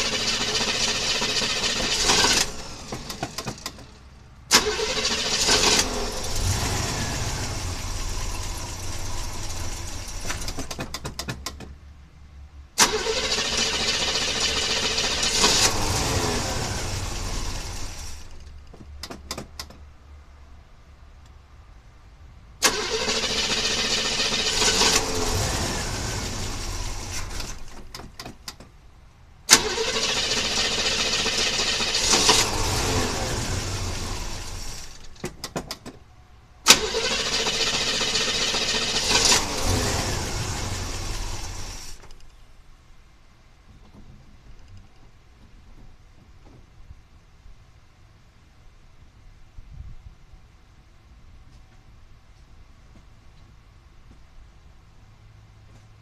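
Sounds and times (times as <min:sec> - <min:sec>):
engine cranking over by starter: 0:00.0 - 0:11.7, 0:12.8 - 0:19.7, 0:22.6 - 0:28.7, 0:29.5 - 0:35.9, 0:36.6 - 0:42.4.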